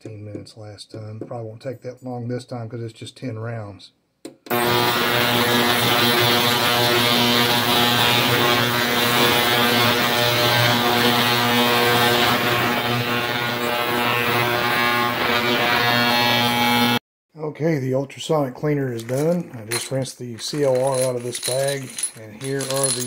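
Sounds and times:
ultrasonic cleaner buzzing: 4.5s - 17.0s.

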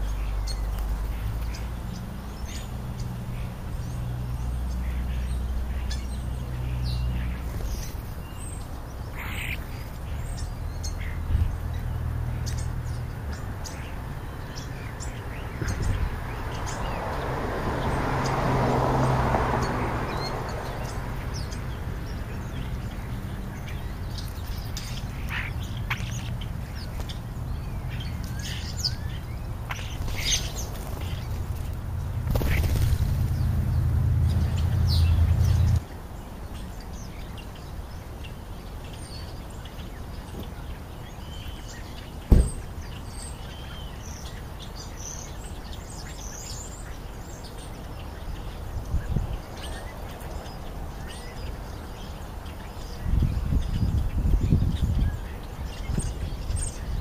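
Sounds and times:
birds chirping and calling: 0.0s - 57.0s.

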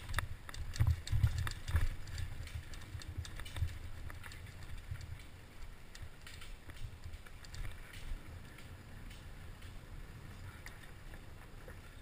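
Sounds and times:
dull thumps and sharp clicks: 0.0s - 5.3s
mountain bike rattling over rocks: 0.0s - 9.8s.

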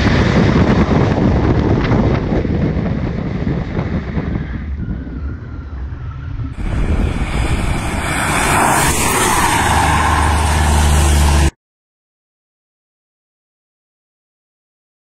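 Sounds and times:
wind buffeting microphone: 0.0s - 11.5s
wind and road rush: 0.0s - 11.6s
vehicles speeding past: 6.5s - 11.5s.

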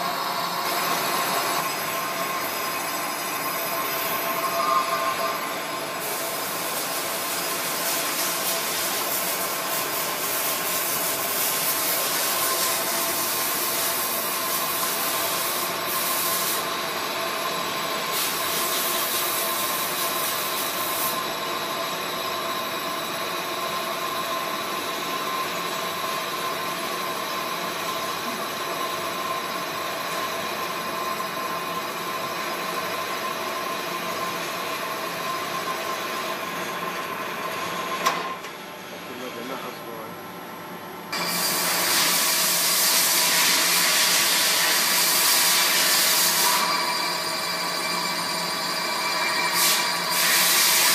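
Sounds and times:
machine running hum: 0.0s - 7.7s
lathe cutting hiss: 0.0s - 22.0s, 41.1s - 50.9s.

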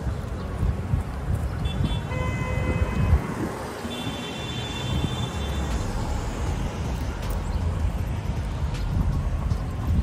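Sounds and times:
city street traffic: 0.0s - 10.0s.

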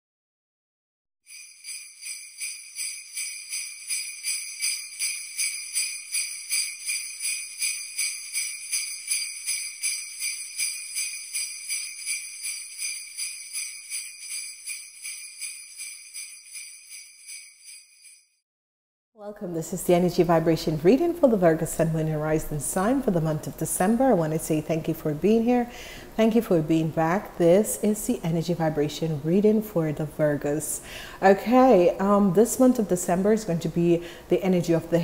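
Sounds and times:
sleigh bells shaken: 1.3s - 18.4s.

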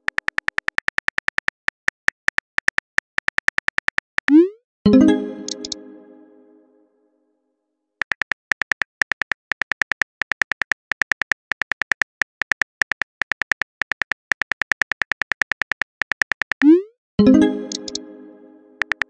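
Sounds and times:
phone keyboard clicks: 0.0s - 4.3s, 5.5s - 5.8s, 8.0s - 16.7s, 17.7s - 18.0s, 18.8s - 19.0s.

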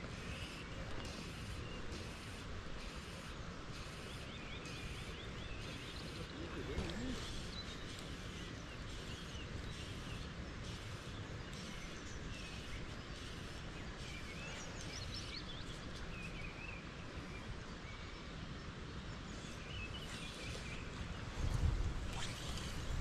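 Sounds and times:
wind: 0.0s - 23.0s
faint bird calls: 0.2s - 15.3s.

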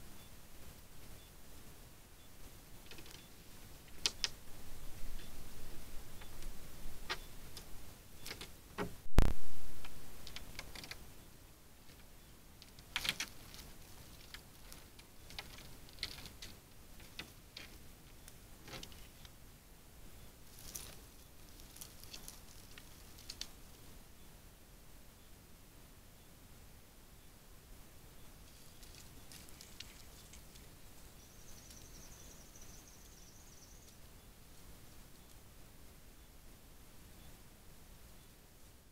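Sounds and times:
light ticks or rustles: 0.0s - 19.4s, 20.1s - 24.3s, 28.2s - 35.6s
crackles of dry leaves and twigs: 2.4s - 11.2s, 11.8s - 19.4s, 20.1s - 24.0s, 28.2s - 35.5s.

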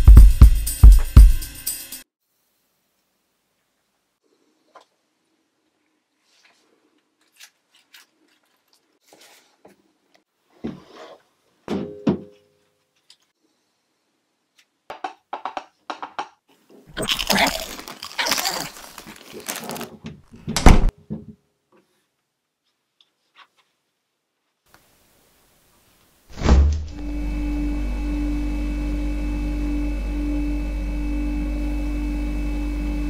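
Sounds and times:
loud thump: 26.3s - 27.0s.

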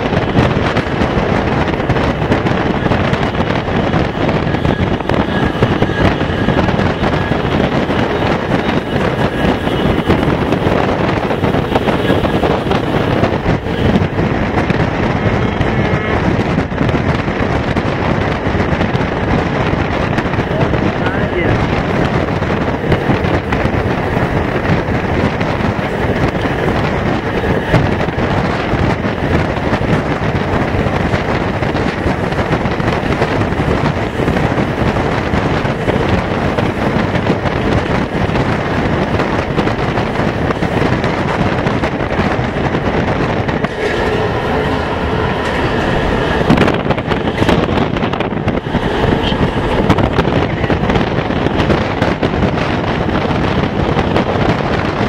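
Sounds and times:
train wheel-on-rail rumble: 0.0s - 55.0s
wind buffeting microphone: 0.0s - 55.0s
steady tones: 19.6s - 54.4s.

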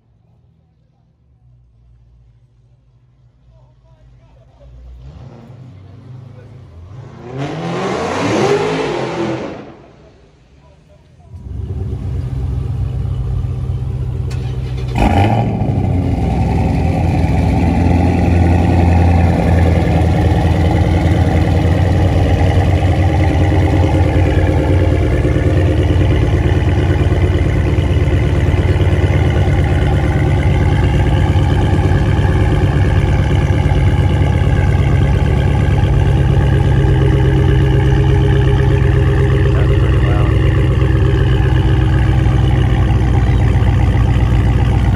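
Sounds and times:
car engines idling: 0.0s - 44.9s
engine starting burst: 14.3s - 15.2s.

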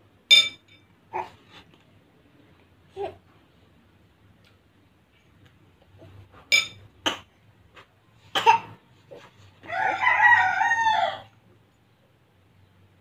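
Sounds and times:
rooster crowing: 9.6s - 11.4s.

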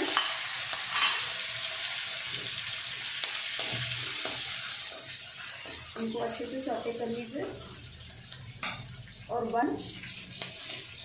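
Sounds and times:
metal spoon scraping a pan: 0.0s - 1.4s
leaves sizzling in hot oil: 0.0s - 11.0s.

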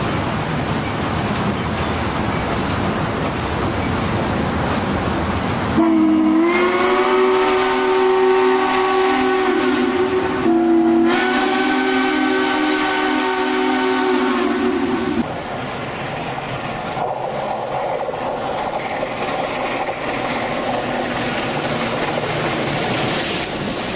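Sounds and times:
passing train rumble: 0.0s - 23.9s
steam train chime whistle: 5.8s - 15.2s.

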